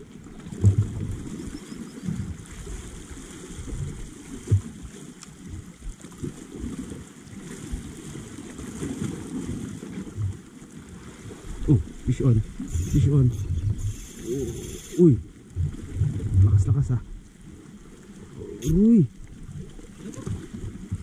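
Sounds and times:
wind buffeting microphone: 0.0s - 2.6s, 11.3s - 17.0s
water lapping against rocks: 0.0s - 21.0s
soft low bumps: 0.4s - 1.2s, 20.2s - 21.0s.

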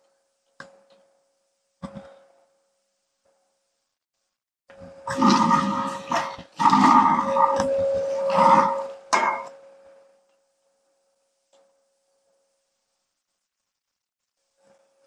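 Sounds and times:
steel tube ringing: 7.0s - 9.6s.

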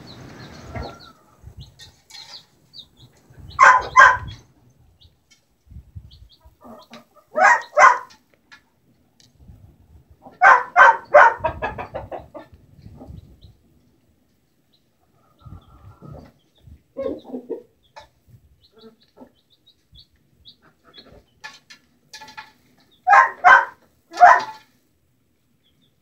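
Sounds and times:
hen clucking: 0.0s - 5.4s, 6.0s - 8.2s, 10.2s - 13.6s, 14.7s - 24.7s.

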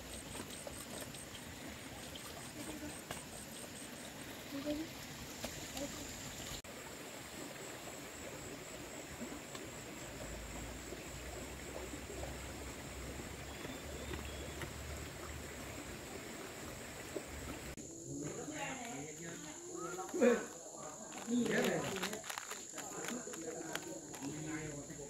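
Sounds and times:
stream water rushing: 0.0s - 17.8s.

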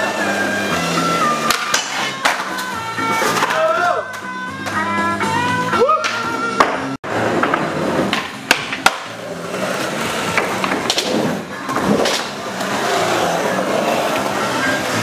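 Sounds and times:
skateboard wheels rolling on concrete: 0.0s - 6.2s, 6.8s - 15.0s
skateboard clacks: 1.3s - 4.9s, 6.0s - 9.2s, 9.8s - 12.8s.

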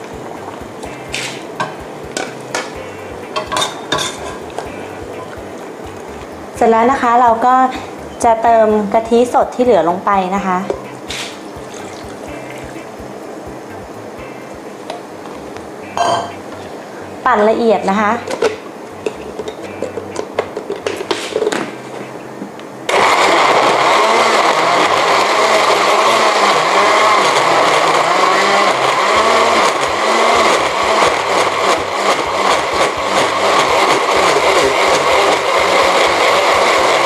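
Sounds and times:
blender running: 22.9s - 37.0s.

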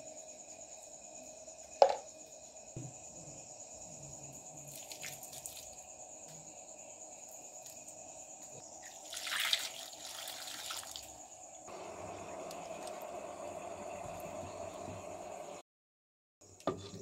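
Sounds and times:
faint water drips: 4.6s - 5.8s, 8.8s - 11.2s
water pouring and splashing into pot: 4.7s - 5.8s, 8.8s - 11.2s, 11.9s - 15.0s.

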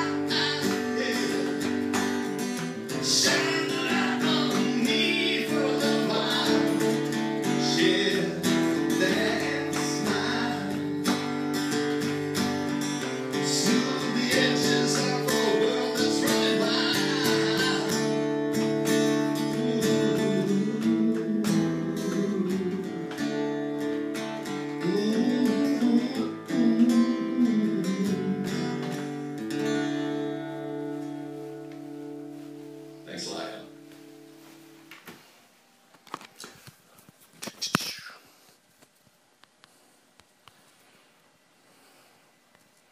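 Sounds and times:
person singing: 0.0s - 2.0s, 2.6s - 11.1s, 13.4s - 23.4s, 24.8s - 29.0s
acoustic guitar strumming: 0.0s - 35.0s.

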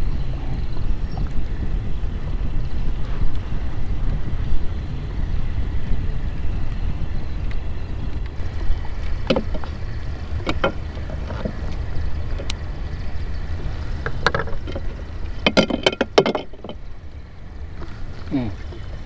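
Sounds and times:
water around boat: 0.0s - 19.0s
wind: 0.0s - 19.0s
sharp knocks and clicks: 8.6s - 12.6s, 14.0s - 16.8s.

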